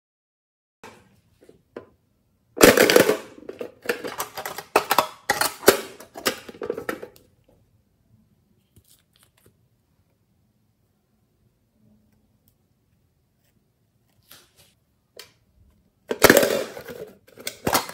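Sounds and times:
plastic case clicking and rattling: 2.6 - 7.2, 16.1 - 17.9.

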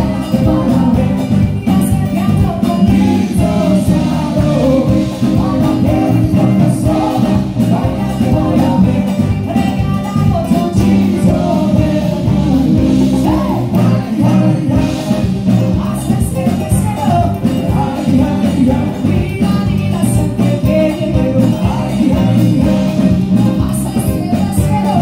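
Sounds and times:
live merengue band: 0.0 - 25.0
man singing: 0.0 - 25.0.

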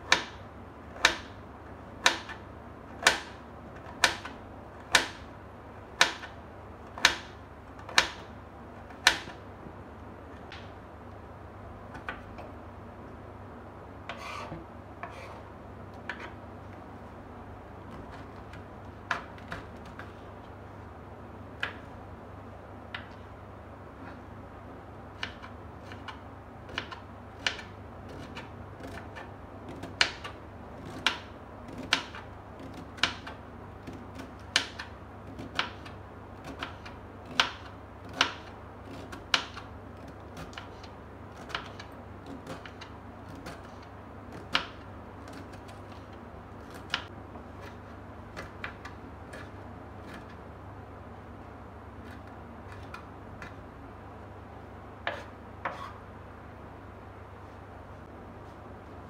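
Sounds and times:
knife slicing cabbage on board: 14.1 - 15.4, 55.0 - 56.0.

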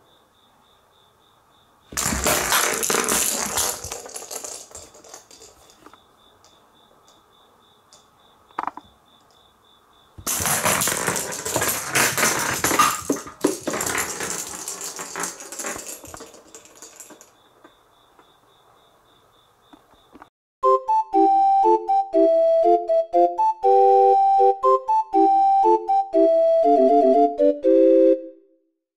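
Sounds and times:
toy ball rattling on wooden floor: 1.9 - 6.6, 8.6 - 8.8, 10.2 - 17.7.

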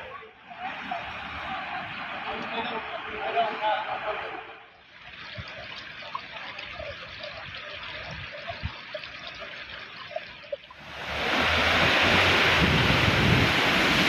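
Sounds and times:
floodwater running along kerb: 0.0 - 14.0
water bubbling: 4.8 - 14.0.

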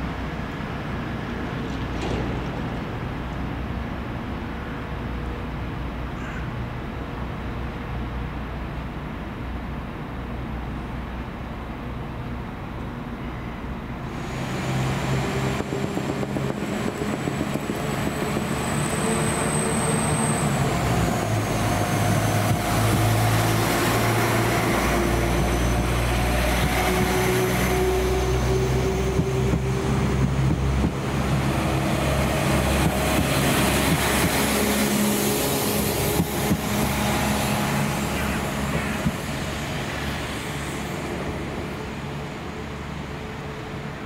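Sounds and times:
diesel train engines running: 0.0 - 44.0.

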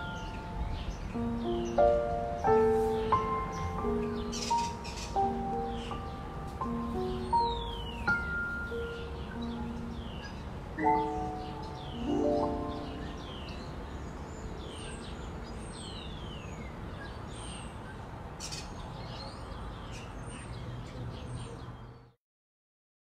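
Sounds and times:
background hiss: 0.0 - 14.4
small birds chirping: 0.0 - 22.2.

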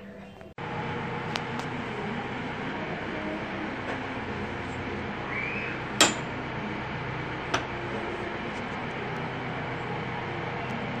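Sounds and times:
steady background noise: 0.0 - 11.0.

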